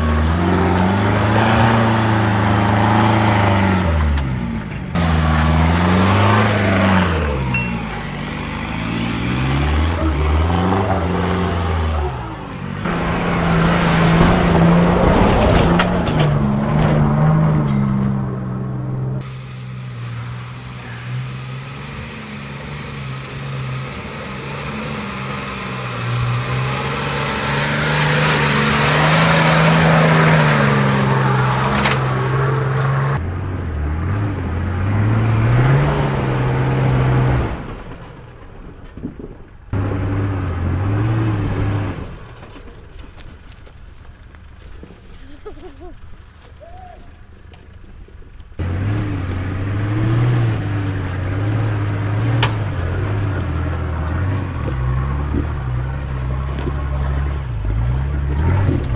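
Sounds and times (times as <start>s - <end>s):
off-road vehicle engines revving: 0.0s - 58.9s.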